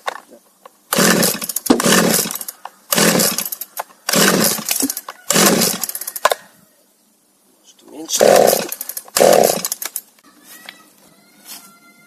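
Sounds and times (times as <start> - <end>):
chainsaw pull-cord starter pulls: 0.9 - 6.4, 8.2 - 10.0.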